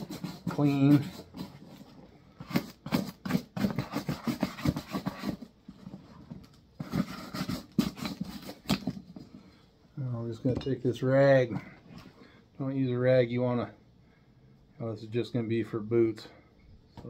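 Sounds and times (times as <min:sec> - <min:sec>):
brush scrubbing leather: 0:00.0 - 0:01.6.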